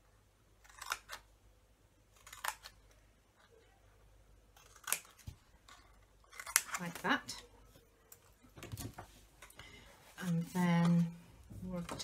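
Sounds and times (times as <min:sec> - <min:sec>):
scissors snipping cardstock: 0:02.2 - 0:02.9, 0:04.6 - 0:07.2.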